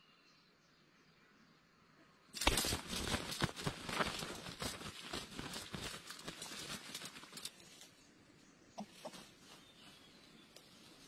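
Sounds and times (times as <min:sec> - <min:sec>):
dry leaves and twigs crackling: 0:02.4 - 0:08.1.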